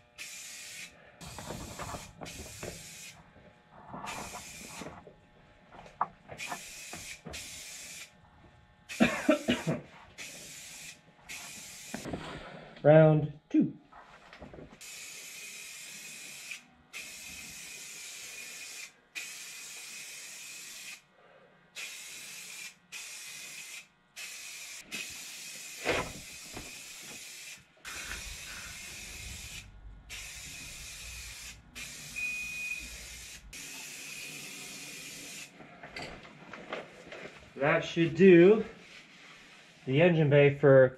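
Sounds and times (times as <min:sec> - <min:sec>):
aerosol spray can hissing: 0:00.2 - 0:03.2, 0:04.0 - 0:04.9, 0:06.4 - 0:08.1, 0:10.2 - 0:12.1, 0:14.8 - 0:21.0, 0:21.8 - 0:32.2
faint steady whistle: 0:32.1 - 0:33.0.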